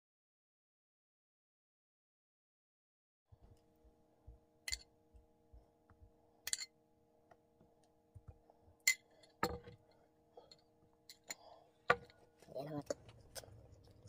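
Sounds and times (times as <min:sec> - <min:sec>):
faint steady hum: 0:03.3 - 0:14.0
glass jar clinking: 0:04.7 - 0:04.9, 0:06.5 - 0:06.7, 0:08.8 - 0:09.8.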